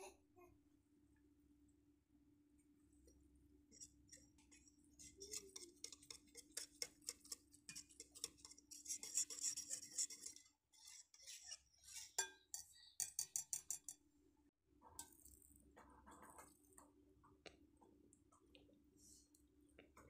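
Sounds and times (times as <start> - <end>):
whisk clicking against glass bowl: 4.3 - 10.5, 11.2 - 14.0.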